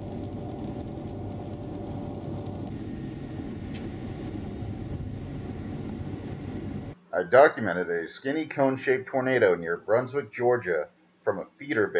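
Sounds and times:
car road and engine noise: 0.0s - 7.0s.

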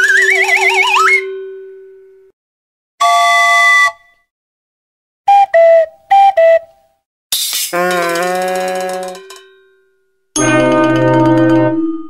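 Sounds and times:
two-note tone: 10.4s - 12.0s.

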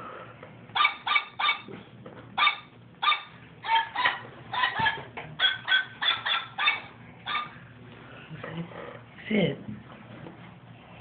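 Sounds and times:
toy dog barks and yips: 0.8s - 1.7s, 2.4s - 7.5s.

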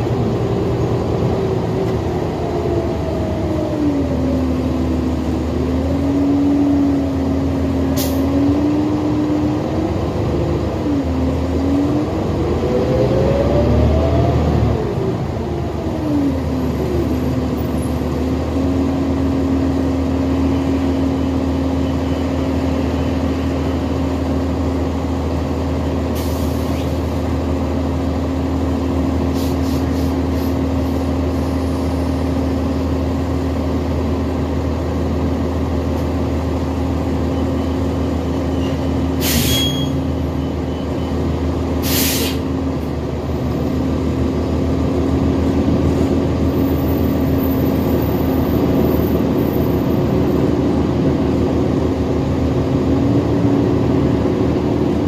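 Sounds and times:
bus whine: 0.0s - 55.0s
diesel engine drone: 0.0s - 55.0s
air hissing: 41.8s - 42.4s.

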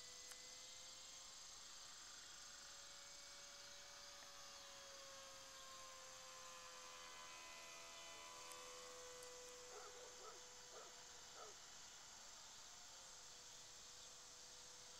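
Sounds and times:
model plane motor whine: 0.0s - 14.9s.

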